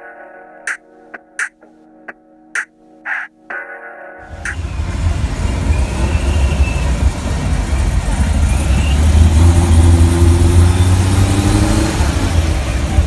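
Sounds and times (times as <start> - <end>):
car engine revving: 4.3 - 13.0.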